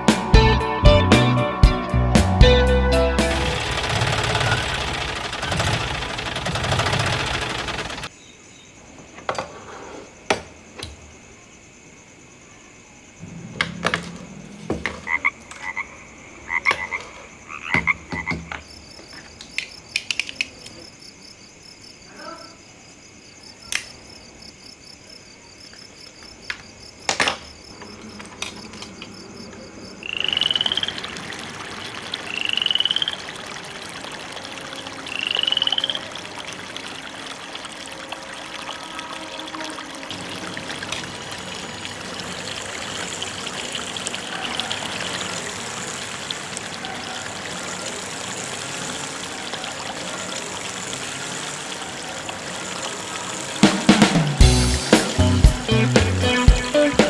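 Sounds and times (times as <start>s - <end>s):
water trickling onto paddle wheel: 3.2s - 8.1s, 30.1s - 54.4s
loud rising animal calls: 30.0s - 37.4s.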